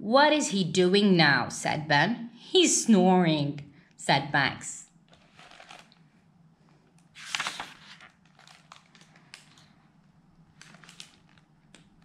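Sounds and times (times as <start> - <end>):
book page turning: 5.1 - 6.0, 7.0 - 9.8, 10.5 - 12.0.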